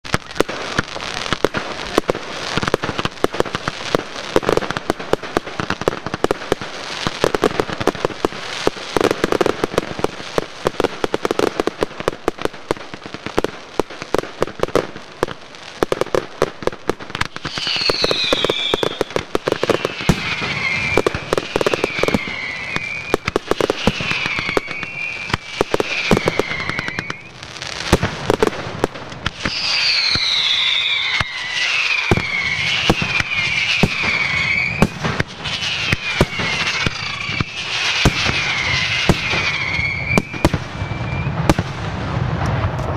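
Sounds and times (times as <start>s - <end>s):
fireworks cracking and banging: 0.0s - 42.9s
high falling whistles: 17.4s - 27.4s, 29.4s - 41.4s.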